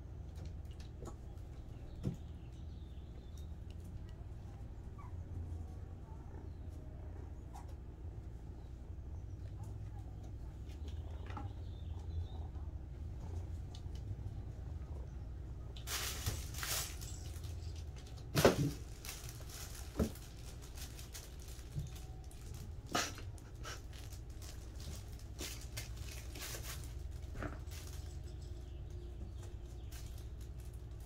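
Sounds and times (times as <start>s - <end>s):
low room hum: 0.0s - 31.0s.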